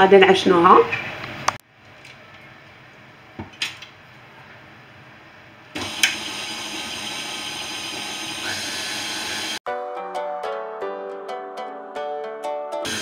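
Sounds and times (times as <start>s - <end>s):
stand mixer motor running: 5.8s - 9.6s.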